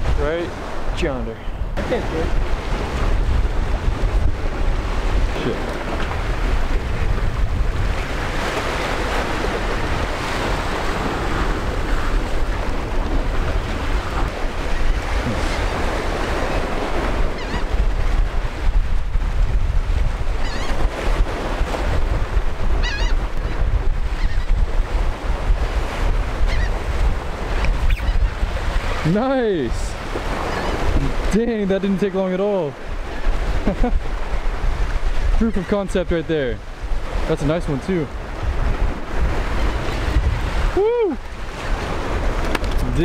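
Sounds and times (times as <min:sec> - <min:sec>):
wind buffeting microphone: 0:00.0 - 0:31.9, 0:32.8 - 0:43.0
waves breaking over rocks: 0:00.0 - 0:43.0
gull calls: 0:17.2 - 0:17.8, 0:20.4 - 0:20.8, 0:22.7 - 0:24.6, 0:26.4 - 0:26.8, 0:27.6 - 0:28.4.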